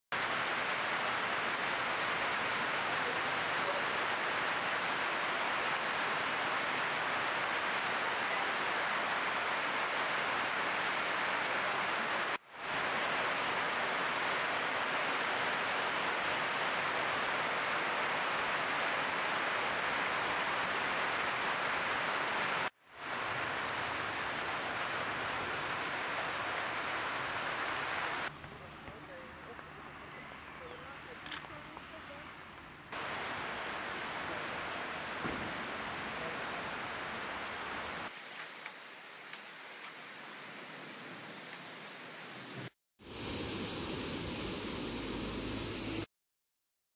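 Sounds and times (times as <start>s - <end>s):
hail and heavy rain on pavement: 33.0s - 38.6s.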